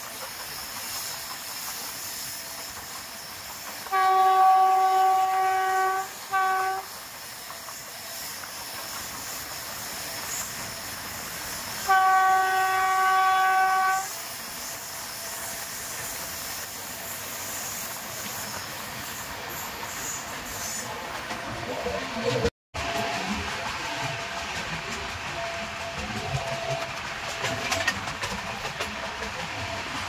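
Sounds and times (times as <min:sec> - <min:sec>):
running train noise: 0:00.0 - 0:30.0
train horn blasts: 0:03.9 - 0:06.9, 0:11.8 - 0:14.1.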